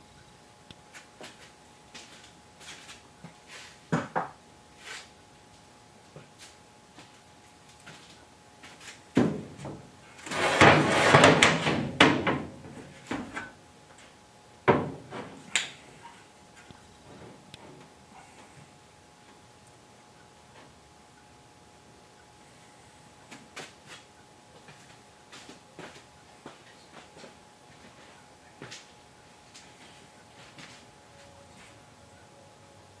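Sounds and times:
steel scraping on steel floor: 10.2 - 11.4.

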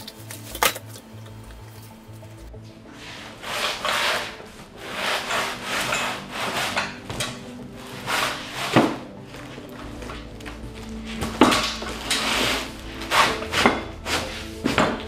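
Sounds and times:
cardboard and metal scraping: 3.1 - 15.0.

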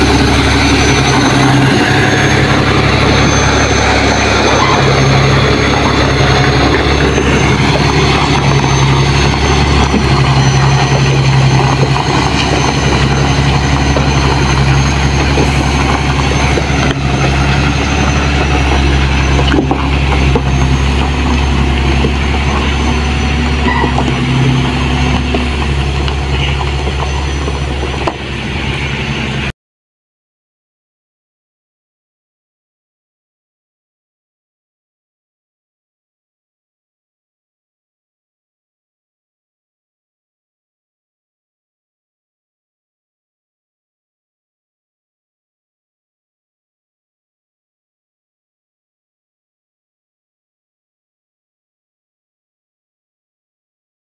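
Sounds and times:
diesel truck engine running: 0.0 - 29.5.

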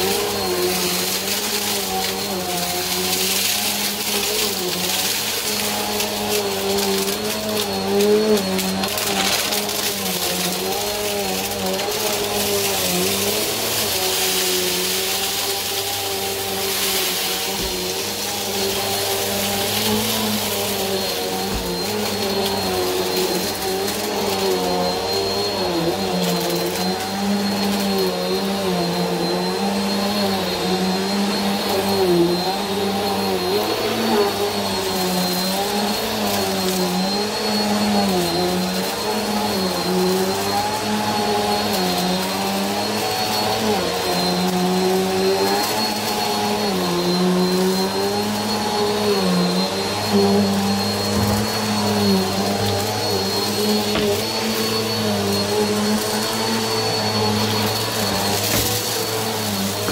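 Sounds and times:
vacuum cleaner running over carpet: 0.0 - 59.9.

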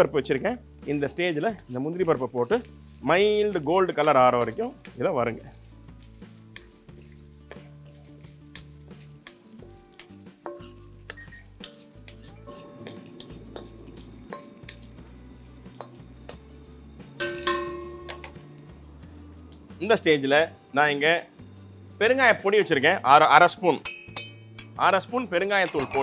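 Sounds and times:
oil sizzling in a pan: 0.0 - 26.0
spatula scraping a pan: 2.1 - 18.3.

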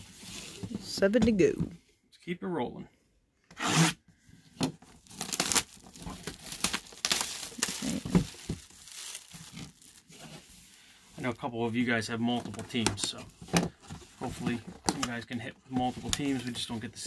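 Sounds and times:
plastic wrap crackling and ripping: 4.8 - 10.5.

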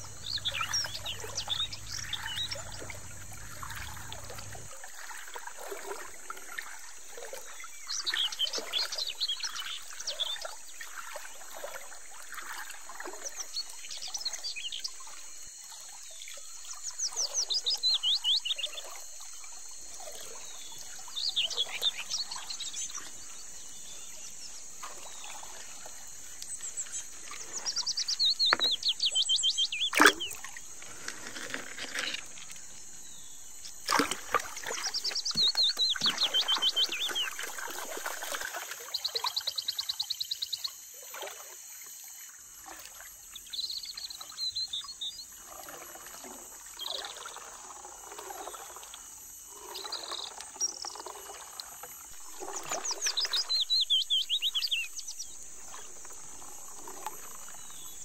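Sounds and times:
water sloshing in a pan: 0.0 - 15.3, 16.1 - 39.4, 44.4 - 58.0
bird singing falling notes: 27.6 - 30.5.

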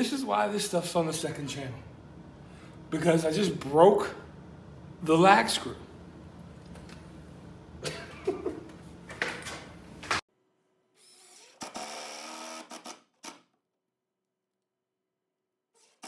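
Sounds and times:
room hum: 0.0 - 13.4
cordless drill driving screw: 11.0 - 13.4.

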